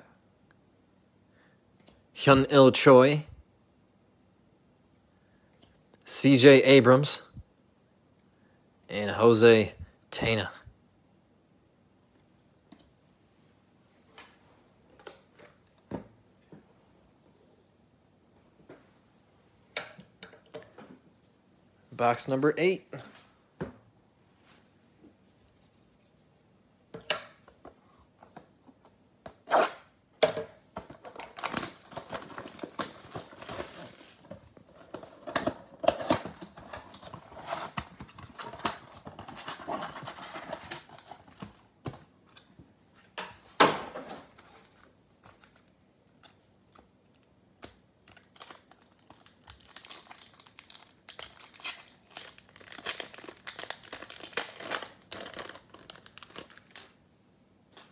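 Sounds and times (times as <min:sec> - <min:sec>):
foil card pack crinkling: 0:31.0 - 0:34.3, 0:48.1 - 0:57.0.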